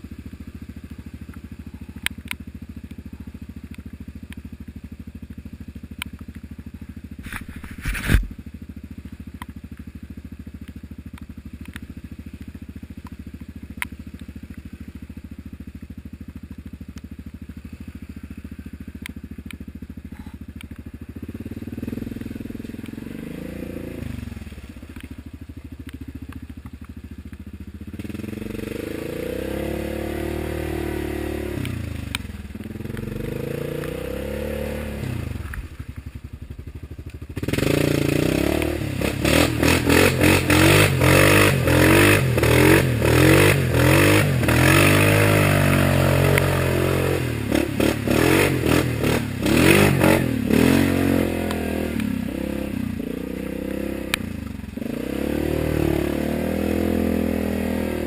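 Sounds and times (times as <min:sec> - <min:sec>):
atv engine revving: 0:00.0 - 0:58.0
mud and water spraying: 0:20.4 - 0:54.1.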